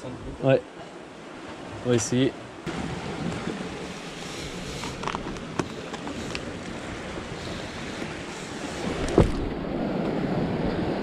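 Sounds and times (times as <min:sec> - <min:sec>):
surf washing over rocks: 0:00.0 - 0:11.0
wind on microphone: 0:02.7 - 0:11.0.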